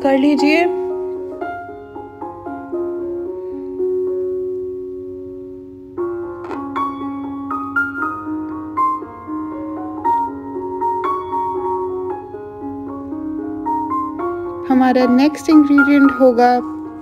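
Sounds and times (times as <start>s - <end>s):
soft piano music: 0.0s - 17.0s.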